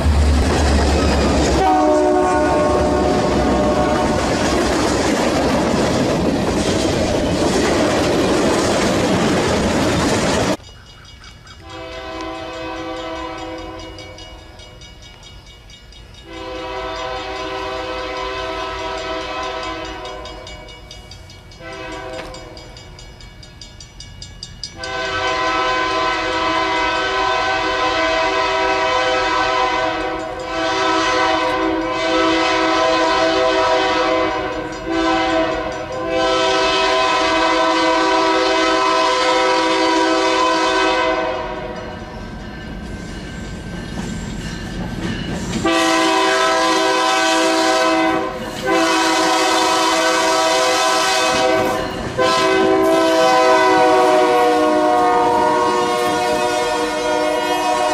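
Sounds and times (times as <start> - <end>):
diesel locomotive air horn: 1.2 - 4.4, 11.6 - 13.9, 16.2 - 20.4, 21.6 - 22.5, 24.8 - 41.8, 45.6 - 57.9.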